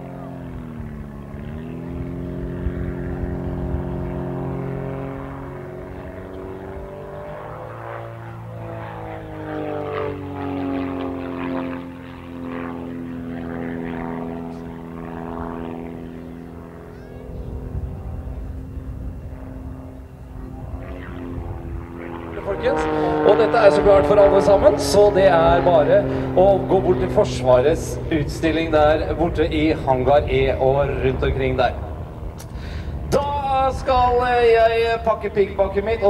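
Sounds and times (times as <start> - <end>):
propeller plane engine droning: 0.0 - 36.0.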